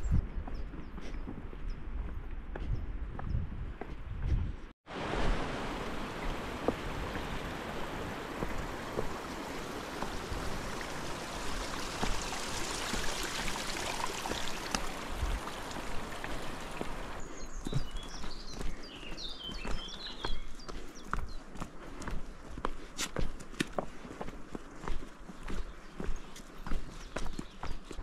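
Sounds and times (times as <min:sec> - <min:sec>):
footsteps on stone path: 0:00.0 - 0:28.0
rushing mountain stream: 0:04.9 - 0:20.4.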